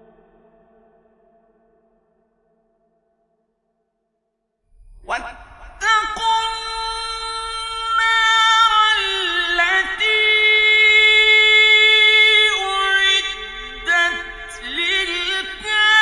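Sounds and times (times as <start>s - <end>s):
man chanting recitation: 5.0s - 16.0s.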